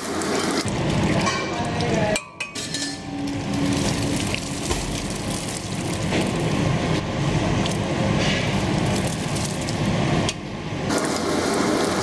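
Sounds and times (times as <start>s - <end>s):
rumbling kitchen noise: 0.0s - 12.0s
curry simmering: 3.2s - 10.2s.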